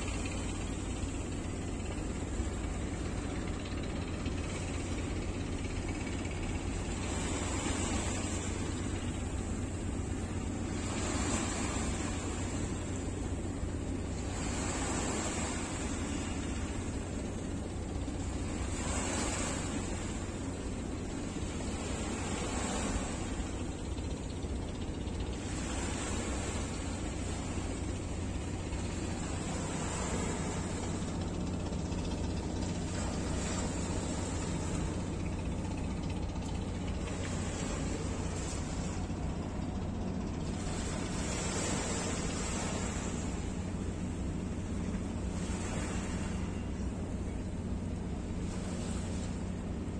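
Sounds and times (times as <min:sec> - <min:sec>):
boat engine humming: 0:00.0 - 0:49.9
river water splashing along hull: 0:00.0 - 0:49.9.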